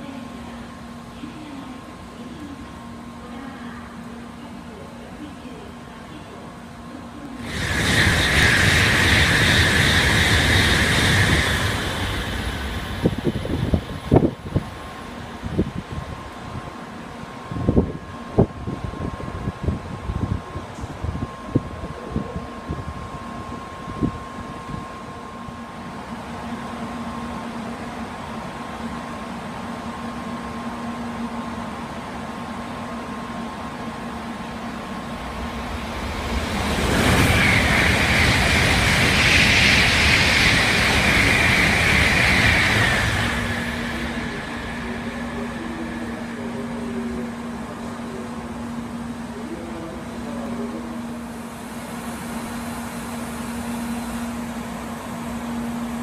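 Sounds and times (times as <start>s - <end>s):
high-speed train rushing past: 0.0s - 56.0s
high hiss: 7.4s - 13.6s.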